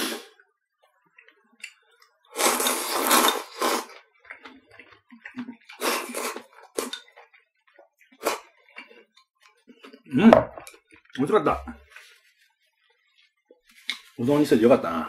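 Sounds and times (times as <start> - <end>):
person slurping noodles: 0.0 - 0.4, 2.3 - 4.0, 5.2 - 7.1, 8.2 - 8.6
chewing sounds: 0.3 - 14.2.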